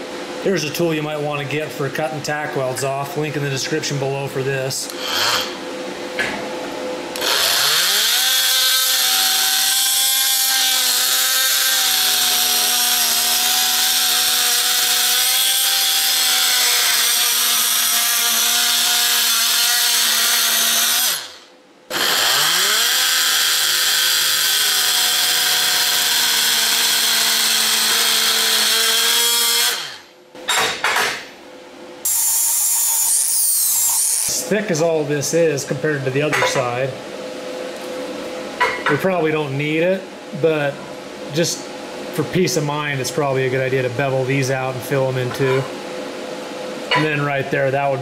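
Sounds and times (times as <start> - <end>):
oscillating multi-tool buzzing whine: 4.9 - 5.6, 7.2 - 30.6, 32.0 - 34.5.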